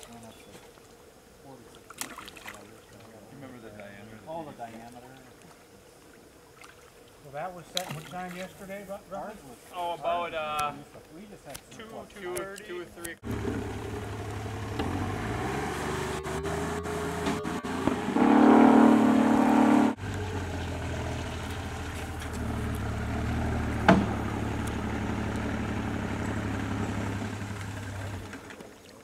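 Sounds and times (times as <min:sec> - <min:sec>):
outboard motor humming: 0:12.2 - 0:28.9.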